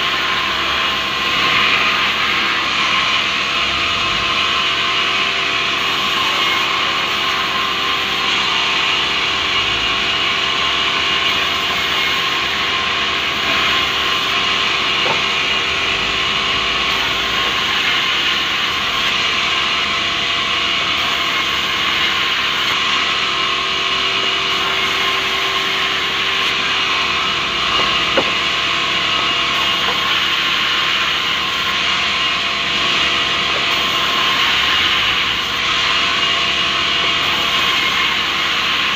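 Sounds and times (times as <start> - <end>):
band saw cutting wood: 0.0 - 38.9
machine hum: 0.0 - 38.9.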